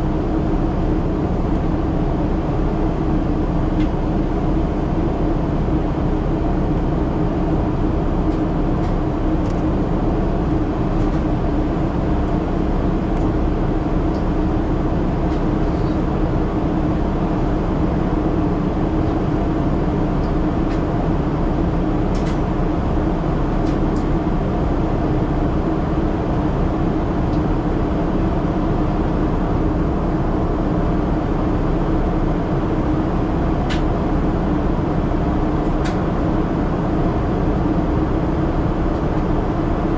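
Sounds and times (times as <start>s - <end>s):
airliner cabin roar: 0.0s - 39.9s.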